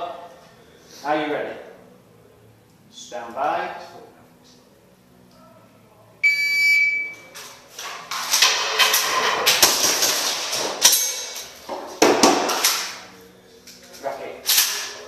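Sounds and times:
shot timer beep: 6.2 - 7.2.

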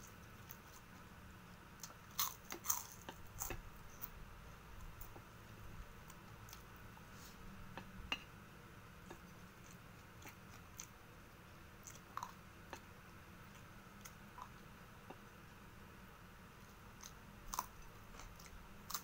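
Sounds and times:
faint chewing and mouth sounds: 0.0 - 5.3, 9.0 - 15.4, 16.6 - 19.0.

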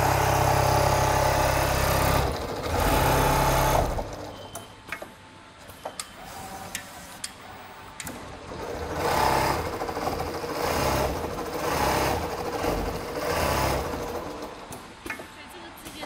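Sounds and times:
sewing machine stitching: 0.0 - 4.5, 8.1 - 14.6.

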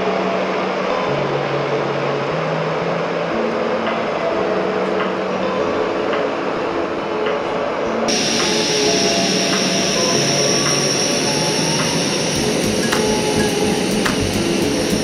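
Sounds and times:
soft background music: 0.0 - 15.0
stove burner roaring: 8.1 - 15.0.

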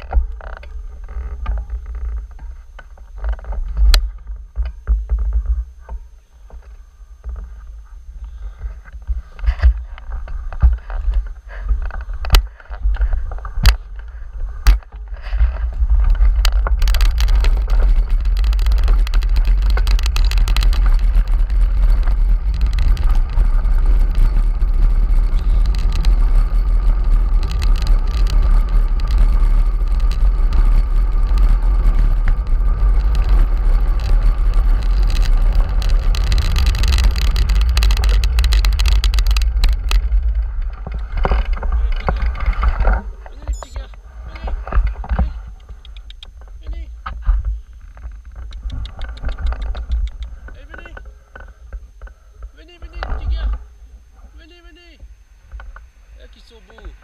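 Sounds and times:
wind buffeting microphone: 7.2 - 54.4
sharp clicks: 16.0 - 46.8, 47.8 - 53.6.

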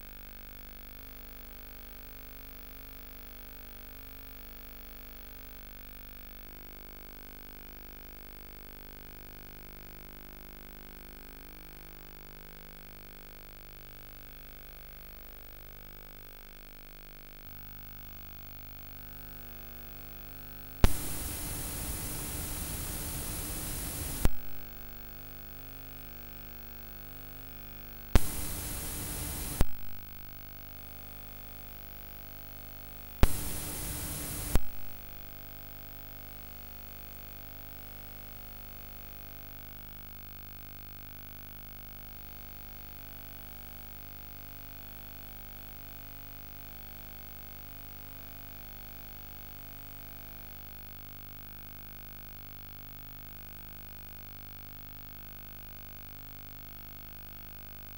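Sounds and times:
sharp clicks: 20.8 - 24.6, 28.2 - 29.9, 33.2 - 35.0
low hum: 20.8 - 24.9, 28.2 - 30.1, 33.2 - 35.2
faint tape hiss: 20.8 - 25.0, 28.1 - 30.4, 33.2 - 35.4
loud static hiss bursts: 20.8 - 25.0, 28.2 - 30.3, 33.2 - 35.4.

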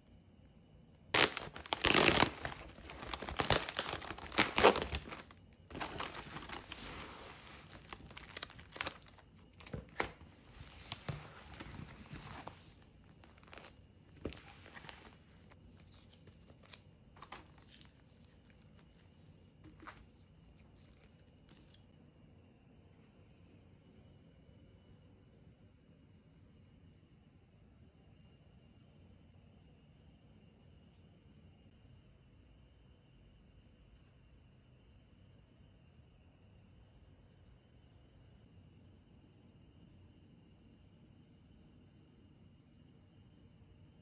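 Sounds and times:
packaging crinkling and tearing: 1.2 - 21.8.

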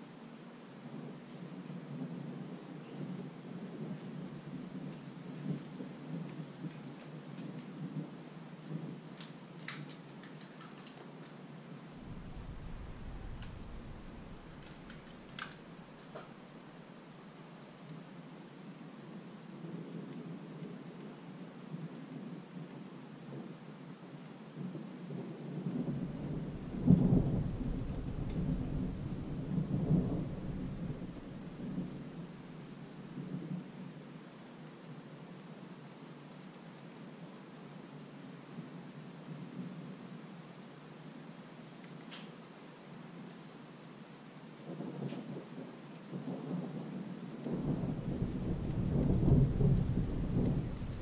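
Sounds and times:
steady rain: 0.0 - 51.0
rolling thunder: 11.9 - 16.4, 25.5 - 32.5, 44.7 - 51.0.

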